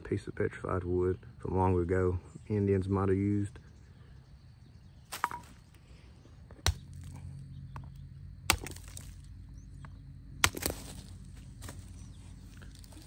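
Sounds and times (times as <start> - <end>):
metal tool knocking on chunk: 5.1 - 5.6.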